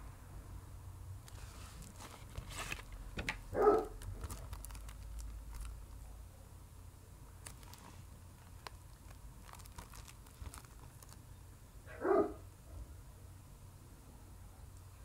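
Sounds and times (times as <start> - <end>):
plastic case crinkling and clicking: 1.2 - 6.0, 7.4 - 11.2.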